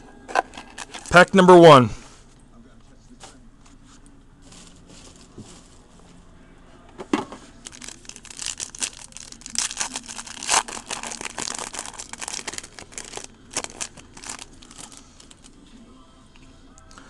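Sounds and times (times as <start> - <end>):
foil wrapper tearing and crinkling: 0.3 - 1.3, 7.6 - 15.5
sharp tear of foil: 7.6 - 15.5.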